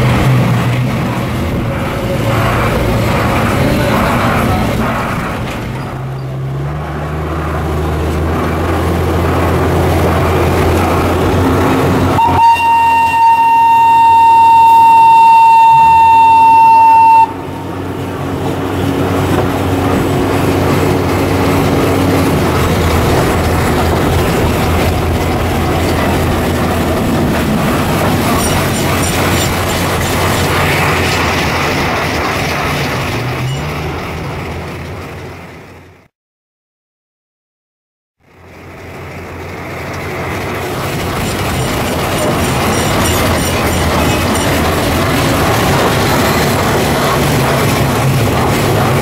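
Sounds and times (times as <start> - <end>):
diesel locomotive engine running: 0.0 - 36.1, 38.2 - 49.0
train whistle: 12.1 - 17.7.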